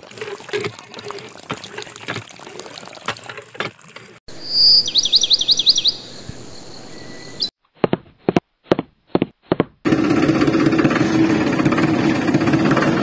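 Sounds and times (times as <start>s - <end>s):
water trickling: 0.0s - 4.2s
bird chirping: 4.3s - 7.5s.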